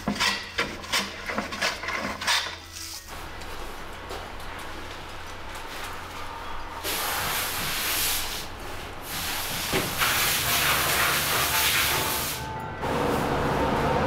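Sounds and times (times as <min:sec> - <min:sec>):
hose spray wand hissing: 0:06.8 - 0:12.4.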